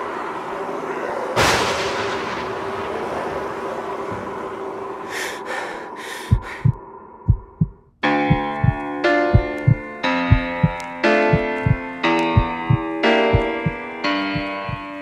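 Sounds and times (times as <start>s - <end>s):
low drone: 0.0s - 7.8s
sudden crash: 1.4s - 4.7s
heartbeat thumps: 6.2s - 15.0s
keyboard music: 7.4s - 15.0s.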